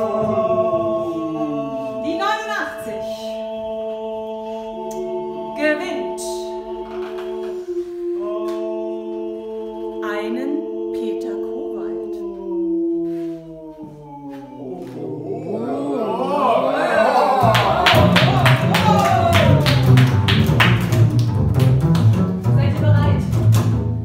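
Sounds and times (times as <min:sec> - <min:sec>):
voices singing a cappella: 0:00.0 - 0:20.2
lively music: 0:17.0 - 0:24.0.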